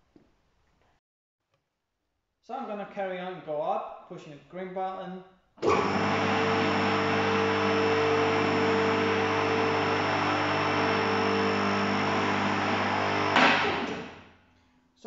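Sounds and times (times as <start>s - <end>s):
hydraulic pump humming and whirring: 5.6s - 14.2s.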